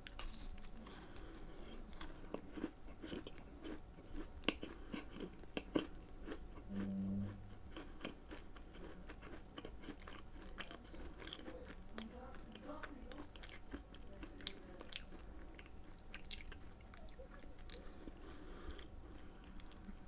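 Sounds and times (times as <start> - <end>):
cookie crunching: 0.0 - 6.9, 7.6 - 20.0
low hum: 6.5 - 8.8.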